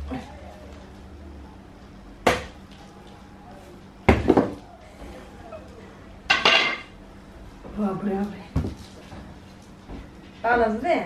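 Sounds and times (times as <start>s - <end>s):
knife chopping fruit on wooden block: 2.2s - 2.6s.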